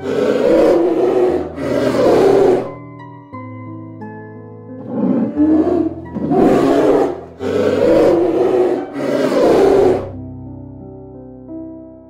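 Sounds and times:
large animal roaring: 0.0 - 2.8, 4.8 - 10.2
background music: 0.0 - 12.0.

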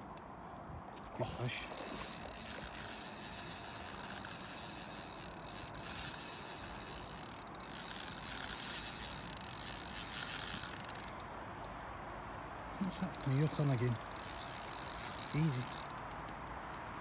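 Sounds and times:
fishing reel drag buzzing: 1.5 - 11.2, 13.1 - 16.8.

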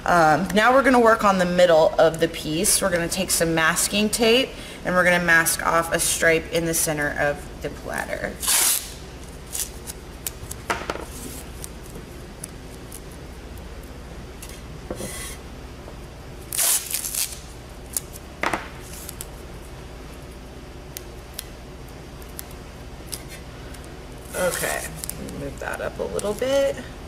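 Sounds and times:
masking tape ripping off roll: 8.4 - 13.1, 16.5 - 18.2.

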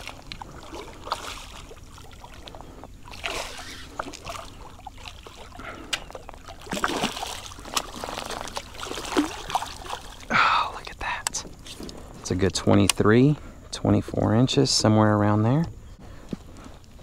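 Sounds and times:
fish splashing at water surface: 0.0 - 10.3.

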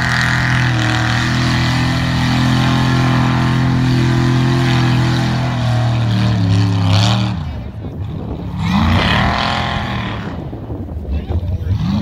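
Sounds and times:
mud and water spraying: 0.0 - 7.3
truck engine under load: 0.0 - 12.0.

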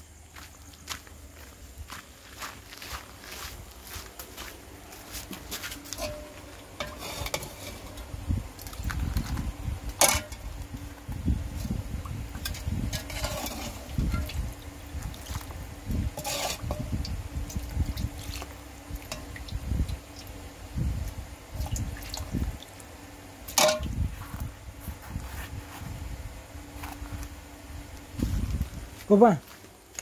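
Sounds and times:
ladle stirring stew in a pot: 5.9 - 8.1, 12.4 - 16.9
ladle clinking against pot: 6.0 - 8.0, 23.5 - 23.9.

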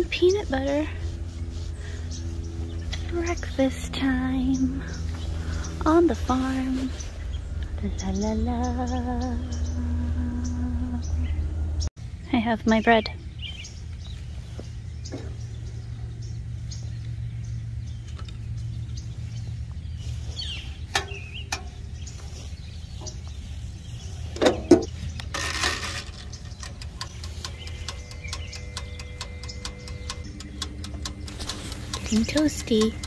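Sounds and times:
faint hum: 0.0 - 33.0
steady low rumble: 0.0 - 33.0
oven rack and door clatter: 24.4 - 33.0
light clicks: 26.0 - 33.0
timer dial ticking: 26.6 - 33.0.

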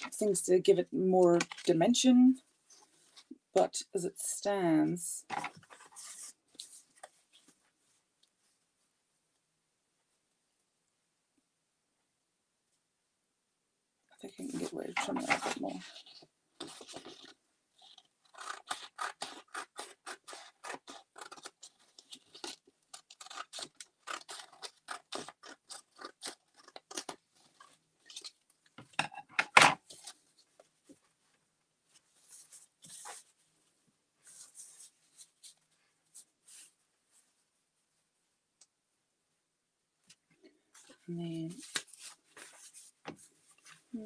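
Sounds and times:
paper rustling: 14.4 - 28.4, 29.8 - 33.4, 40.8 - 44.0
scissors snipping paper: 17.9 - 28.4.

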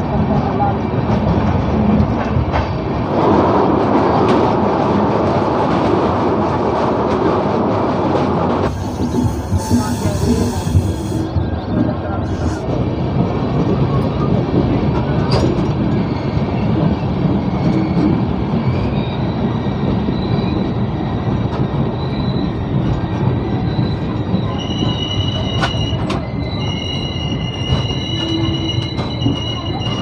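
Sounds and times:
train rumbling on rails: 0.0 - 30.0
wheel squeal: 8.7 - 11.4, 18.6 - 30.0.

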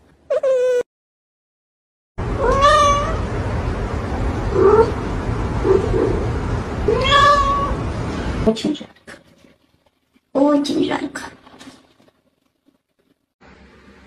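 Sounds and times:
cat meowing: 2.4 - 3.3, 6.9 - 7.8.

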